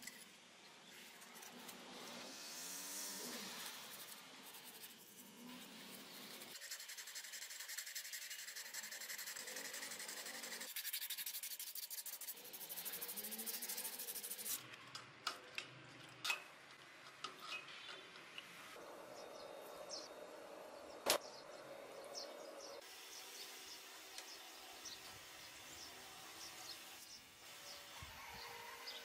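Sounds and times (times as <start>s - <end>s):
hand sanding strokes: 1.1s - 14.6s.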